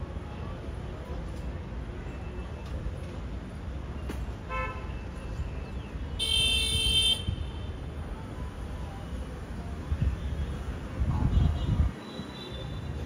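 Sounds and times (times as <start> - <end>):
vehicle horn honking: 6.2 - 7.6.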